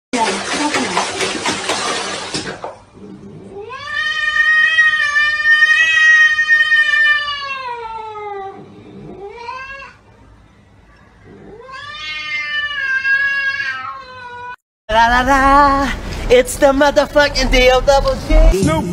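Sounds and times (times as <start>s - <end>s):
cat yowling: 3.5s - 10.0s, 11.3s - 14.6s.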